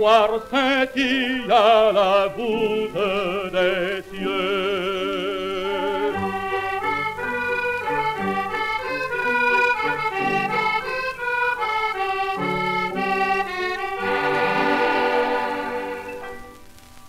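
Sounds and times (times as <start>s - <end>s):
accordion melody: 0.6s - 16.8s
piano accompaniment: 1.4s - 17.0s.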